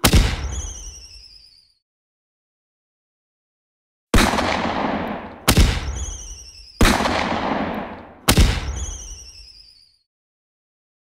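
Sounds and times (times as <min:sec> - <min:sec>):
firework bangs: 0:00.0 - 0:01.4, 0:04.2 - 0:09.7
high falling whistle: 0:00.4 - 0:01.8, 0:05.8 - 0:06.8, 0:08.6 - 0:10.0.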